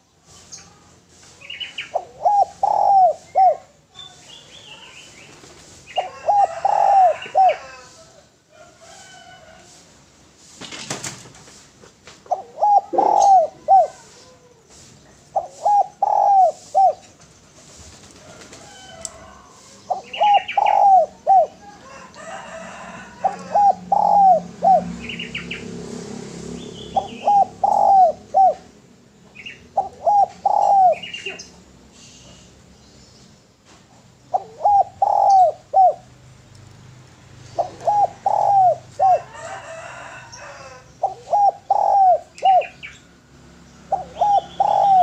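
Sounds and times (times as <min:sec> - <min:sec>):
dove cooing: 0:01.9 - 0:03.8, 0:05.9 - 0:08.0, 0:12.3 - 0:14.7, 0:15.3 - 0:17.2, 0:19.8 - 0:25.6, 0:26.8 - 0:28.8, 0:29.4 - 0:31.6, 0:34.3 - 0:36.1, 0:37.4 - 0:42.9, 0:43.8 - 0:45.0.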